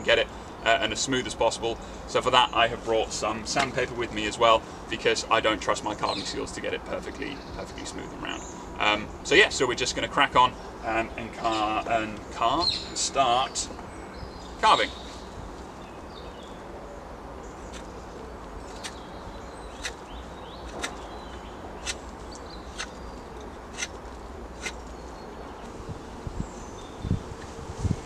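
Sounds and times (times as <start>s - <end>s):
knife scraping wood: 19.7s - 20.0s, 20.6s - 21.0s, 21.8s - 24.9s.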